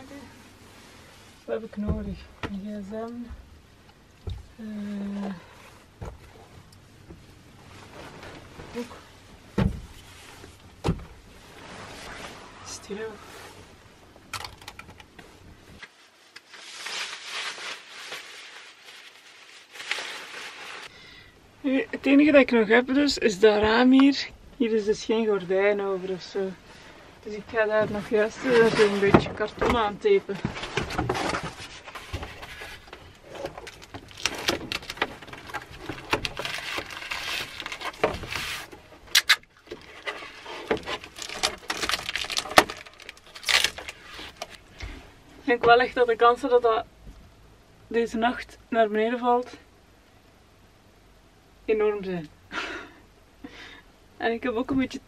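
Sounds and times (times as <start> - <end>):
fabric and bedding rustling: 0.0 - 3.5, 5.1 - 14.2, 15.2 - 20.9, 24.8 - 39.0
cardboard rustling and scraping: 11.2 - 13.8, 27.4 - 39.1, 39.7 - 45.0.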